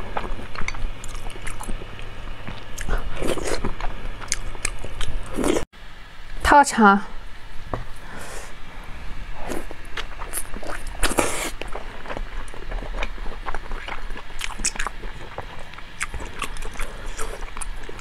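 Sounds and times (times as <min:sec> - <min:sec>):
person chewing wetly: 0:00.0 - 0:05.7, 0:09.4 - 0:18.0.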